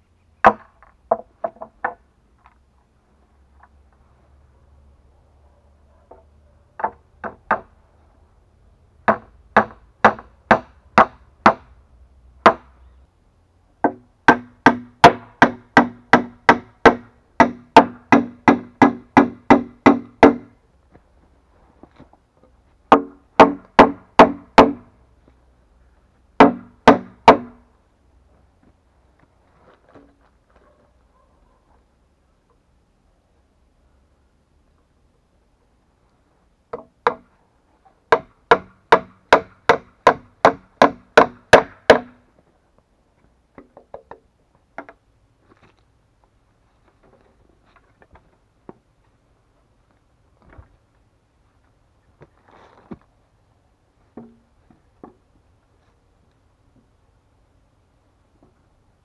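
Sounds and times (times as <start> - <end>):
hammer driving nails into wood: 13.8 - 20.5, 22.9 - 24.8, 26.4 - 27.6, 38.2 - 42.2.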